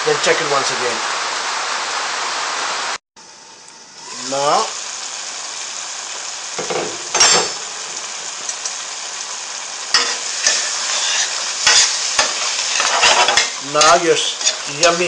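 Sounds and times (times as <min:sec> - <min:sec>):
curry sizzling in a metal pan: 0:01.6 - 0:15.0
utensil scraping a pan: 0:09.9 - 0:15.0.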